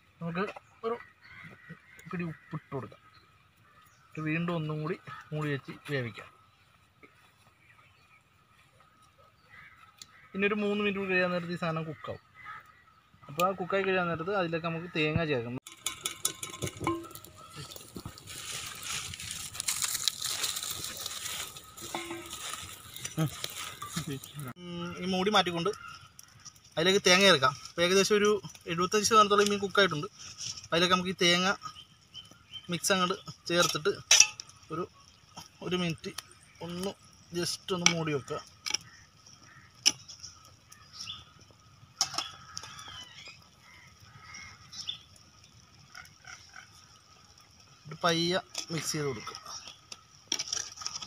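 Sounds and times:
birds calling faintly: 0.0 - 51.0
metal clinking on clay pot: 15.6 - 18.1, 21.8 - 24.3, 33.6 - 34.7
wood fire crackling and popping: 15.6 - 51.0.

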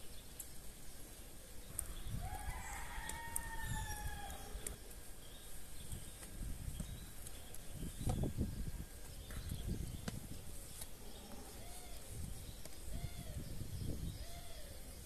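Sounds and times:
rooster crowing: 2.2 - 4.6.

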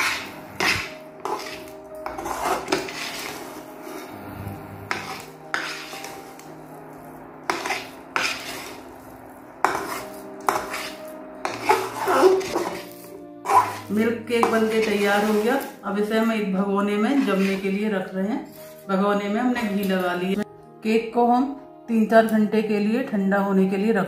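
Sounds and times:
spatula scraping metal pan: 0.0 - 6.6, 7.4 - 15.8, 16.9 - 17.9.

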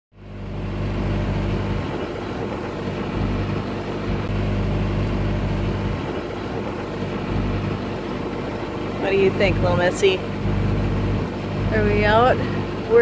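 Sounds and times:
diesel engine running: 0.1 - 13.0.

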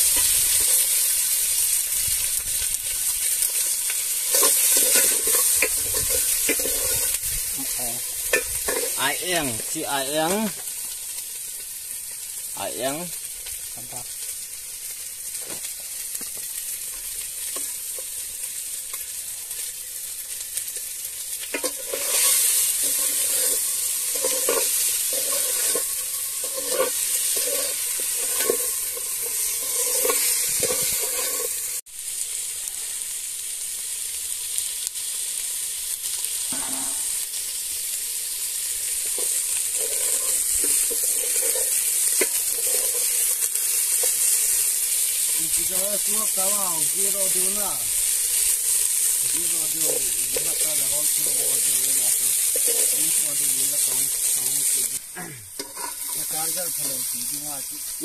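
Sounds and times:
fish sizzling in oil: 0.0 - 58.0
metal ladle scraping pot: 4.2 - 7.2, 21.5 - 31.6, 39.1 - 44.2, 51.2 - 53.2, 55.6 - 56.8.

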